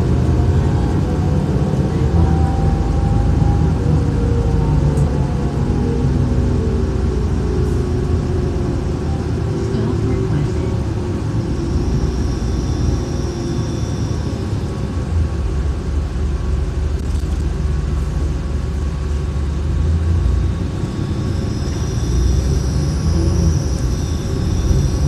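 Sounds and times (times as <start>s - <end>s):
bus engine and road rumble: 0.0s - 25.0s
faint high whine: 5.4s - 25.0s.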